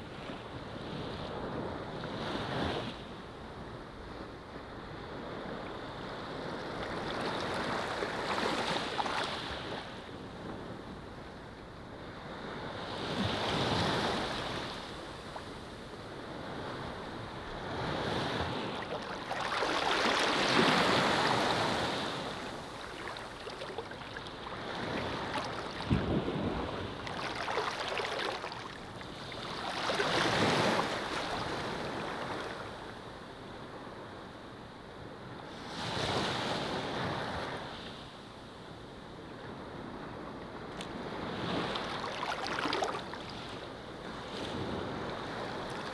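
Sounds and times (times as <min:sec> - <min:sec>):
waves washing onto sand: 0:12.3 - 0:32.9, 0:40.6 - 0:45.9.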